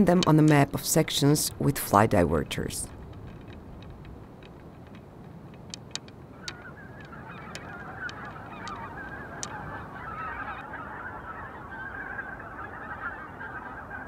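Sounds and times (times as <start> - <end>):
geese honking in flight: 6.3 - 14.0.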